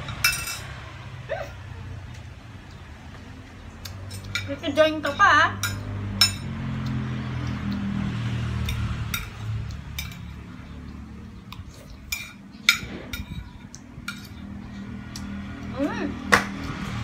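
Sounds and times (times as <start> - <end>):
metal spoon clinking on plate: 0.1 - 0.8, 8.7 - 10.4, 12.0 - 14.4.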